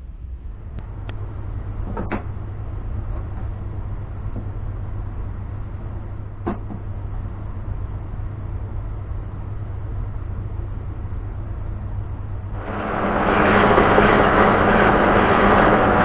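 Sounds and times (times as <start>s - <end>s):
workshop hum: 0.0s - 16.0s
loud machine noise: 12.6s - 16.0s.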